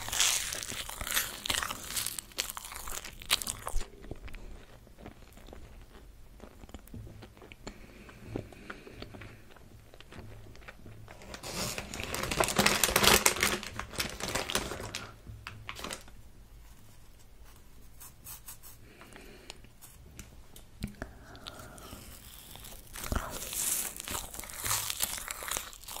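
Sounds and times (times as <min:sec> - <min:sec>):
plastic bag crinkling: 0:00.0 - 0:06.0, 0:10.6 - 0:16.2, 0:21.4 - 0:26.0.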